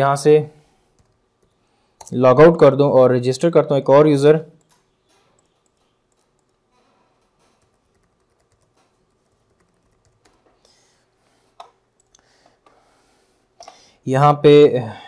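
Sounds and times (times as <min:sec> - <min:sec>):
faint keyboard typing: 0:00.7 - 0:02.2, 0:04.6 - 0:12.8.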